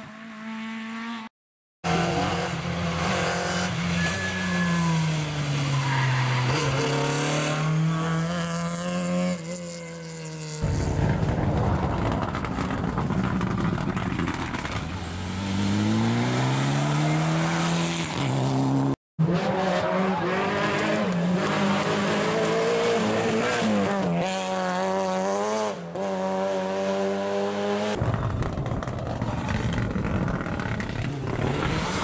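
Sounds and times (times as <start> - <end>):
rally car engines at speed: 0.0 - 32.0.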